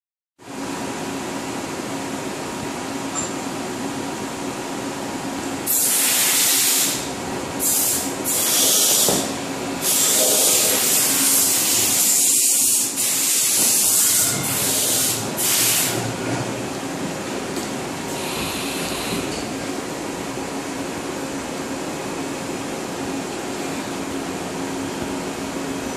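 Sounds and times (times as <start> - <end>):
low shop hum: 0.4 - 25.9
compressed air hissing bursts: 5.7 - 16.0.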